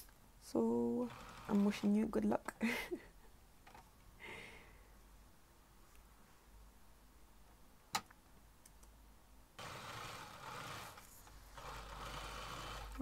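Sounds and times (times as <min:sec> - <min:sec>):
sewing machine stitching: 0:00.8 - 0:02.1, 0:09.6 - 0:13.0.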